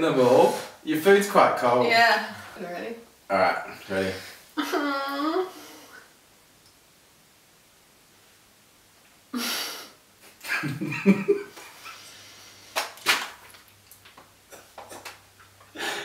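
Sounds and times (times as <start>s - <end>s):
stifled laughter: 10.3s - 12.0s.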